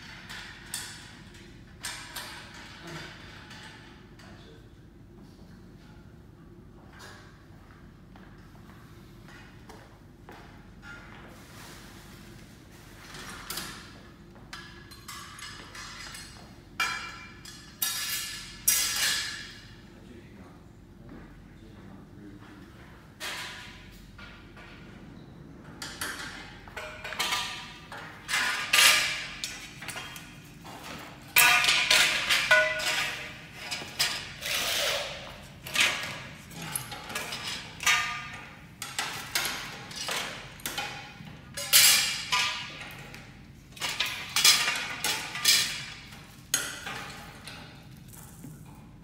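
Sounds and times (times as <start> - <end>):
metal shelf rails clanking: 25.8 - 48.0.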